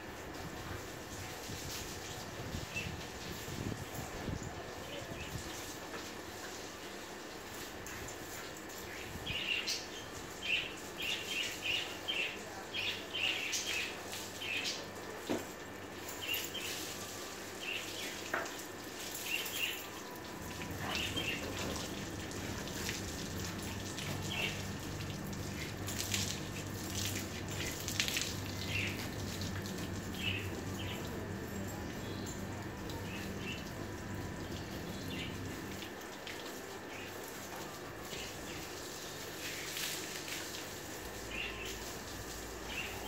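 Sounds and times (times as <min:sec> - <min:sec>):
hose spraying water on car: 0:00.0 - 0:30.9, 0:34.6 - 0:43.0
low steady hum: 0:07.7 - 0:43.0.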